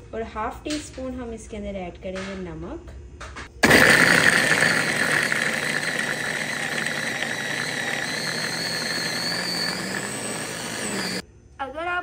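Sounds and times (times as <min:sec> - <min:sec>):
electric blender running: 0:03.6 - 0:11.2.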